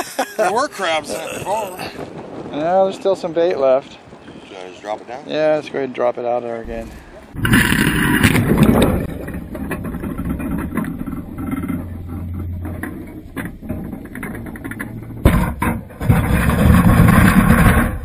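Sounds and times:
muffled underwater rumble: 0:06.7 - 0:17.0.

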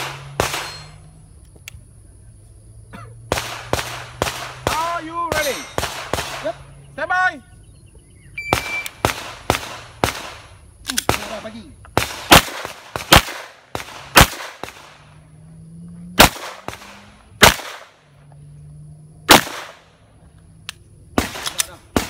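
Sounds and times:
pistol shots: 0:00.0 - 0:01.0, 0:03.3 - 0:06.6, 0:08.5 - 0:15.1, 0:16.2 - 0:18.0, 0:19.3 - 0:19.9, 0:21.2 - 0:22.0
shot timer beep: 0:08.3 - 0:09.0.

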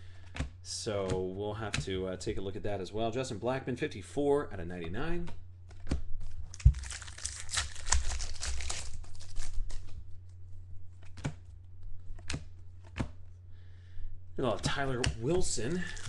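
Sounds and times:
low electrical hum: 0:00.0 - 0:16.0
foil wrapper tearing and crinkling: 0:06.4 - 0:10.0, 0:15.7 - 0:16.0.

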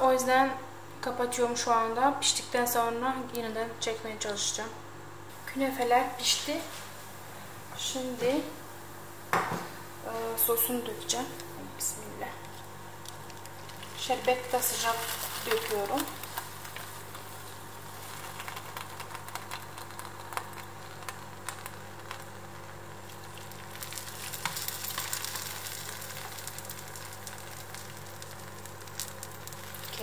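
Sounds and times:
steady low hum: 0:00.0 - 0:30.0
syrup sizzling on hot pastry: 0:12.4 - 0:30.0.

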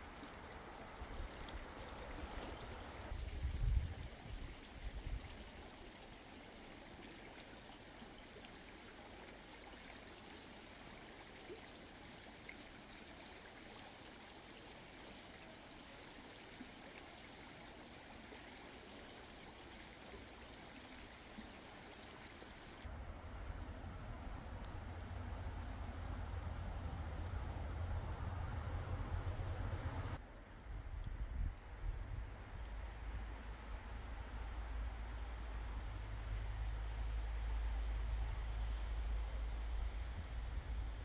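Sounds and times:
flowing water rushing: 0:00.0 - 0:22.9.

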